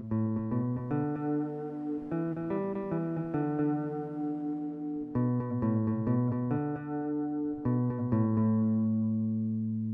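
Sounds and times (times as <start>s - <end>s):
electric guitar picking melody: 0.0s - 9.9s.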